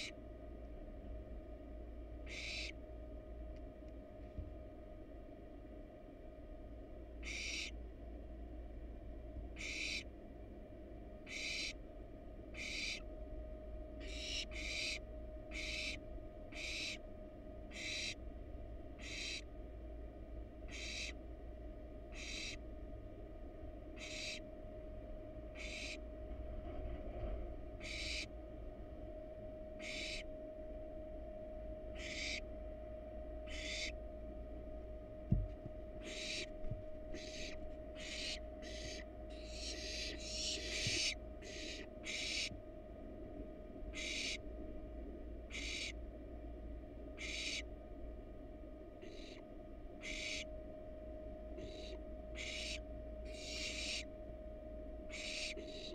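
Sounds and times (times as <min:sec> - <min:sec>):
faint steady hum: 0:00.0 - 0:55.9
owl chick rasping screeches: 0:02.2 - 0:02.8, 0:07.2 - 0:07.8, 0:09.5 - 0:10.1, 0:11.2 - 0:11.8, 0:12.5 - 0:13.1, 0:14.0 - 0:18.2, 0:18.9 - 0:19.5, 0:20.7 - 0:21.2, 0:22.1 - 0:22.6, 0:24.0 - 0:24.5, 0:25.5 - 0:26.0, 0:27.8 - 0:28.3, 0:29.8 - 0:30.3, 0:31.9 - 0:32.6, 0:33.4 - 0:34.0, 0:36.0 - 0:42.6, 0:43.9 - 0:44.4, 0:45.5 - 0:46.0, 0:47.2 - 0:47.7, 0:49.0 - 0:49.4, 0:50.0 - 0:50.5, 0:51.5 - 0:54.1, 0:55.1 - 0:55.9.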